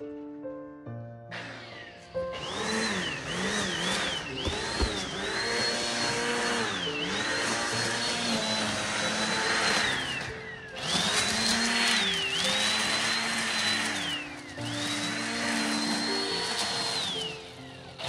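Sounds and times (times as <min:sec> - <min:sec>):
electric trimmer motor whining: 0:01.3 - 0:18.0
short knocks: 0:04.4 - 0:05.2.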